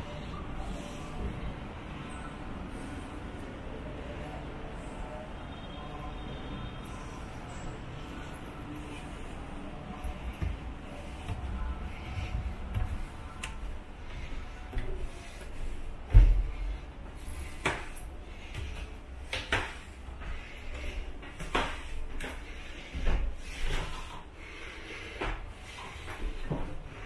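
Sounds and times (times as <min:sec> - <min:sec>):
low indoor hum: 0:00.0 - 0:27.0
footsteps on wooden stairs: 0:10.0 - 0:24.2, 0:25.1 - 0:27.0.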